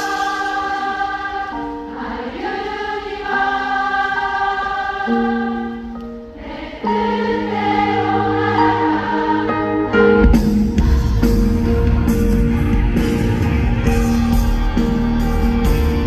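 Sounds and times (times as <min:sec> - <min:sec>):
audience singing along: 0:00.0 - 0:16.0
live band playing pop ballad: 0:10.0 - 0:16.0.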